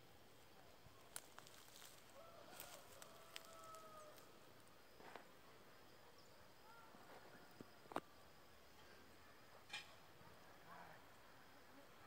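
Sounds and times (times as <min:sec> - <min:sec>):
faint rooster crow: 0:01.6 - 0:04.5.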